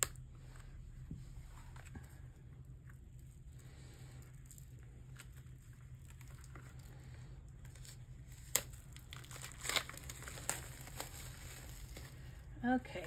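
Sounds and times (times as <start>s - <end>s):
paper packaging crinkling: 1.6s - 12.5s.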